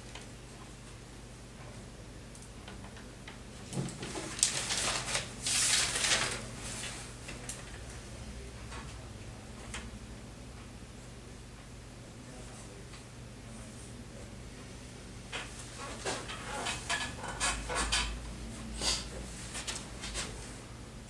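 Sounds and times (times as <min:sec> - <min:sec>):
steady low hum: 0:00.0 - 0:21.0
rustling: 0:04.0 - 0:07.1.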